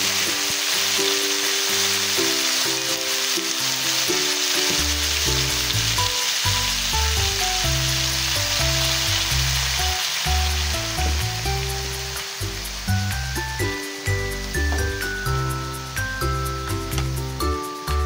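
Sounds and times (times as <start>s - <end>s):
food sizzling in a wok: 0.0s - 18.0s
background music with bass line: 4.0s - 18.0s.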